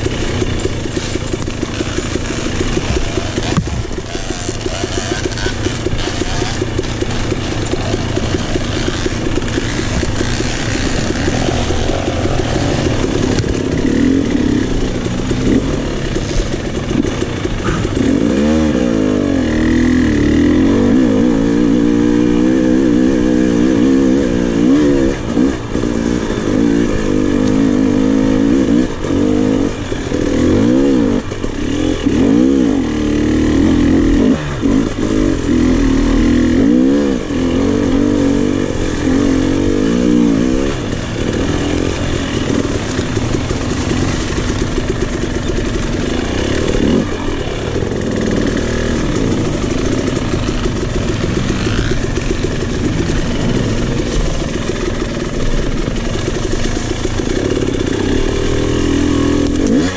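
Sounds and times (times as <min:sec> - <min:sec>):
two-stroke engine revving: 0:00.0 - 0:59.9.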